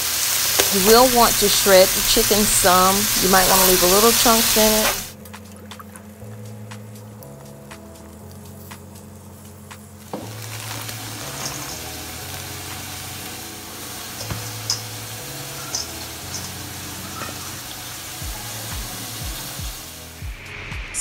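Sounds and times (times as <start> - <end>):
chicken sizzling in a frying pan: 0.0 - 5.2, 8.4 - 20.2
background music with bass line: 5.0 - 21.0.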